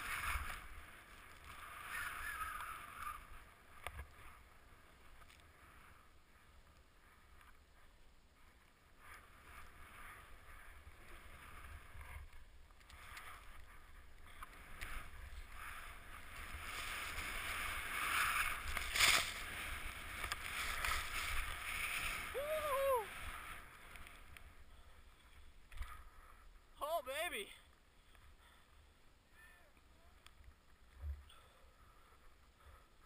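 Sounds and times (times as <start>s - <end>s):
skis running through powder snow: 0.0s - 25.5s.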